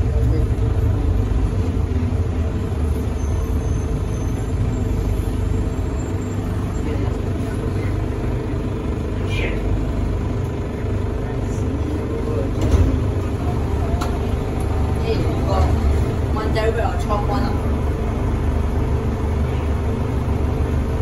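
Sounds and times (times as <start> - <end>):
low motor hum: 0.0 - 21.0
train cabin rumble: 6.9 - 20.9.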